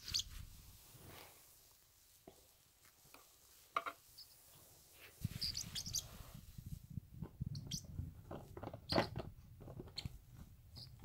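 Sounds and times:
parrotlet chirping: 0:00.0 - 0:00.3, 0:05.4 - 0:06.1, 0:07.5 - 0:07.9.

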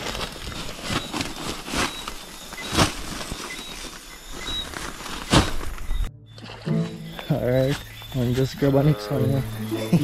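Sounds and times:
bag and leaves rustling: 0:00.0 - 0:06.0.

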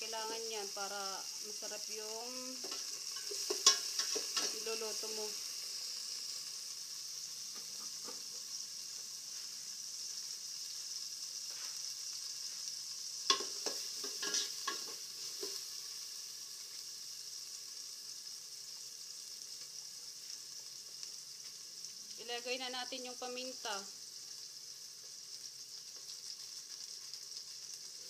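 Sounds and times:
onions sizzling in a pot: 0:00.0 - 0:28.0
metal spoon scraping a pot: 0:14.0 - 0:15.0.

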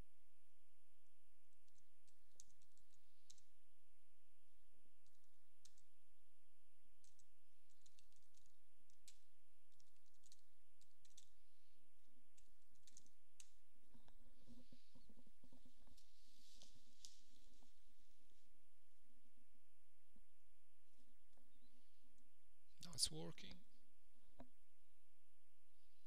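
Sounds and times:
keyboard typing clicks: 0:01.6 - 0:03.5, 0:05.0 - 0:05.9, 0:07.0 - 0:11.4, 0:12.3 - 0:14.2.

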